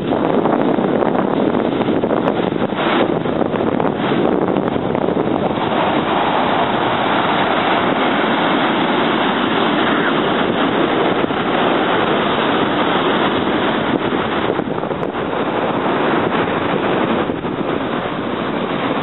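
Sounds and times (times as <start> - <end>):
surf breaking on beach: 0.0 - 19.0
wind buffeting microphone: 0.0 - 19.0.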